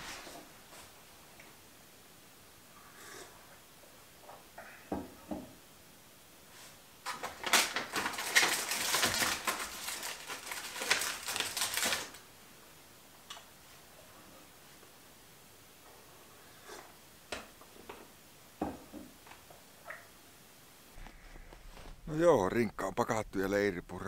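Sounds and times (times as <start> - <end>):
plastic bag crinkling: 7.0 - 12.3.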